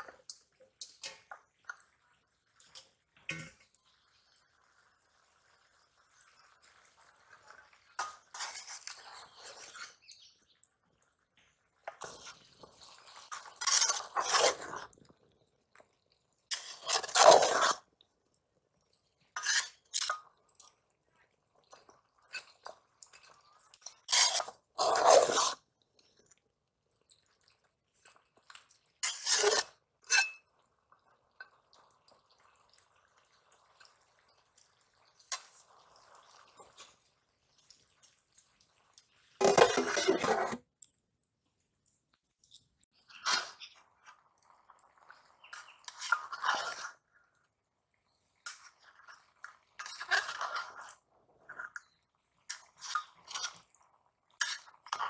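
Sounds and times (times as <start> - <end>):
metal spatula scraping steel bowl: 8.0 - 10.1, 13.2 - 15.0, 16.5 - 17.8, 19.4 - 20.2, 22.3 - 25.6, 29.0 - 30.4, 39.4 - 40.6, 43.1 - 43.8, 45.4 - 47.0, 49.8 - 53.7.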